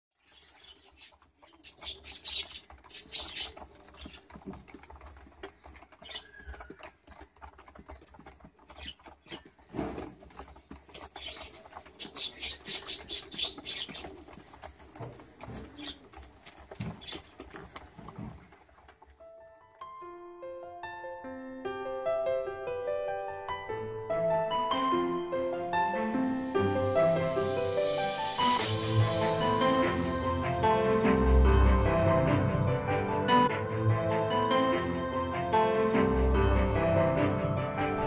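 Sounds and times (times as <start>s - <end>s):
pigeon wings flapping: 0.3s - 19.2s
pigeons cooing: 11.2s - 17.6s.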